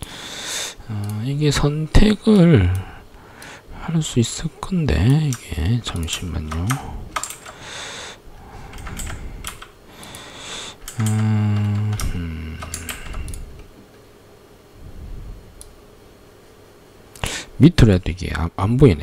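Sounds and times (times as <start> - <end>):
computer keyboard keystrokes: 5.0 - 7.6, 8.7 - 10.2, 10.8 - 13.4
short low hum: 8.3 - 15.8.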